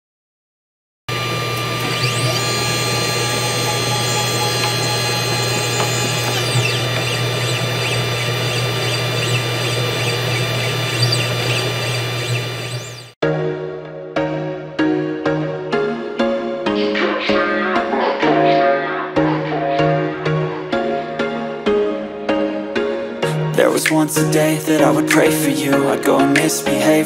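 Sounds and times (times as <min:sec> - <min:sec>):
laser engraver motor hum: 0:01.1 - 0:13.2
stepper motor whines: 0:01.1 - 0:13.2.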